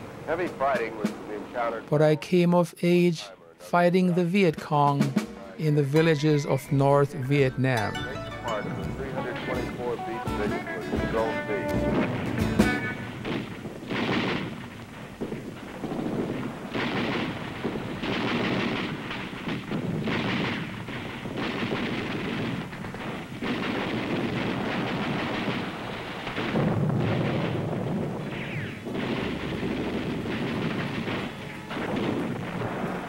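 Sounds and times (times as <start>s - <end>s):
heavy blast: 0.0s - 33.0s
single gunshots: 8.5s - 33.0s
automatic gunfire: 11.0s - 33.0s.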